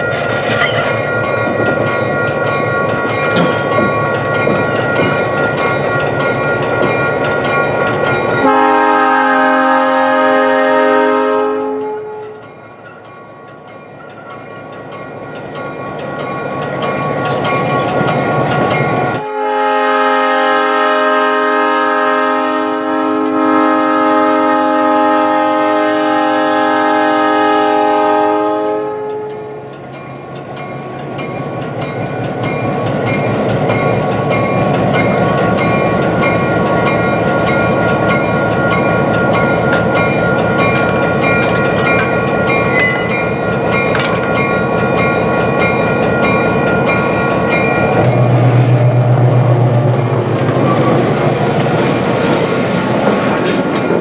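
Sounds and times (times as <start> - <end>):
locomotive air horn blasts: 8.4 - 12.4, 19.2 - 29.6
wheels clattering over rails: 49.9 - 54.0.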